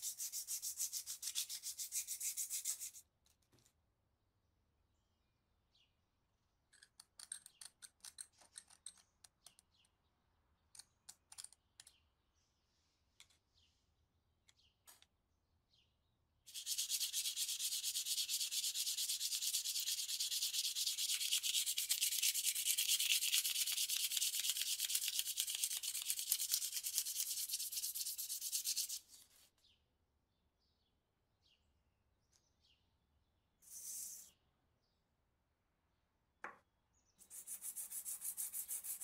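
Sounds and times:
sanding metal by hand: 0:00.0 - 0:03.0, 0:16.5 - 0:29.1, 0:37.2 - 0:39.0
brief scrape: 0:33.6 - 0:34.4.

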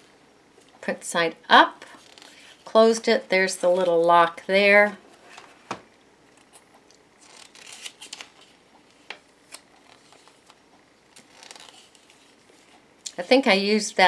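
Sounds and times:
paper booklet pages rustling: 0:01.9 - 0:02.7, 0:07.2 - 0:13.9.

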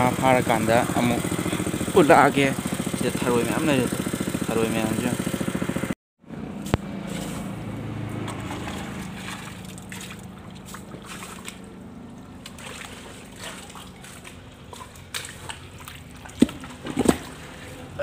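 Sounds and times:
hands sloshing in muddy water: 0:07.0 - 0:18.0
small water splashes: 0:07.0 - 0:18.0.

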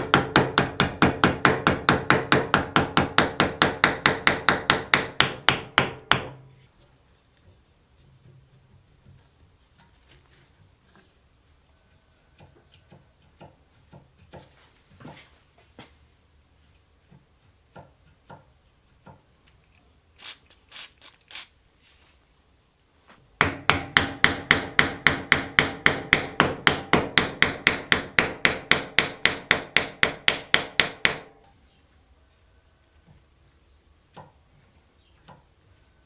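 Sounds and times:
hammer beating on wooden block: 0:00.0 - 0:06.5, 0:17.1 - 0:19.2, 0:23.4 - 0:31.4.

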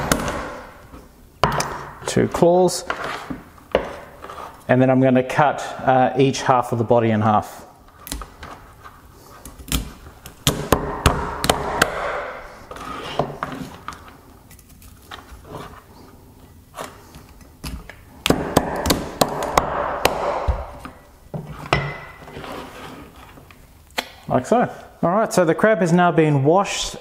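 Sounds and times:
cleaver chopping on wooden board: 0:10.5 - 0:12.4, 0:18.3 - 0:21.0.

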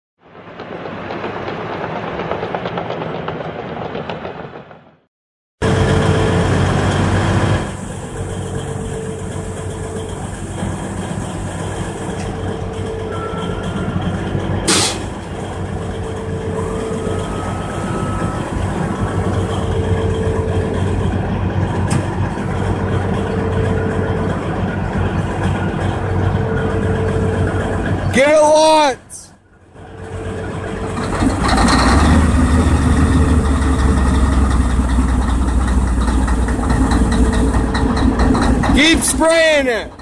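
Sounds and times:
diesel engine running: 0:05.6 - 0:40.0
warning tone: 0:11.8 - 0:14.4, 0:15.5 - 0:21.3, 0:22.5 - 0:28.7.

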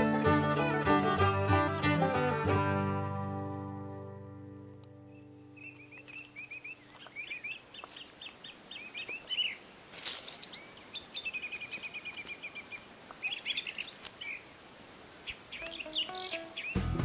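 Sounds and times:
small songbirds singing: 0:04.6 - 0:09.6, 0:10.4 - 0:14.5, 0:15.2 - 0:17.0.

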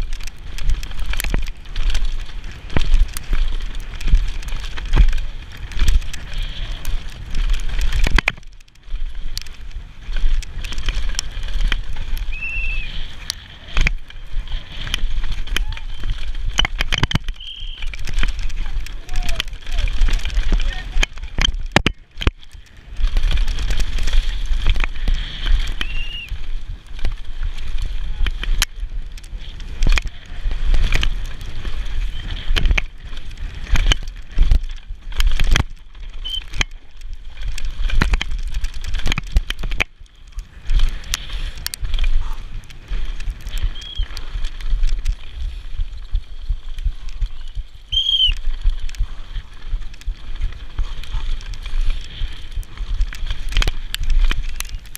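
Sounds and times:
bike tyres clattering over rocks: 0:00.0 - 0:54.9
wind rumbling on microphone: 0:00.0 - 0:54.9.

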